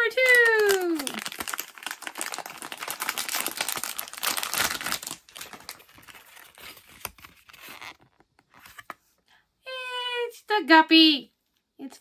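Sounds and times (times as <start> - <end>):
foil bag crinkling and tearing: 0.0 - 7.8
plastic and paper rustling: 0.0 - 9.1.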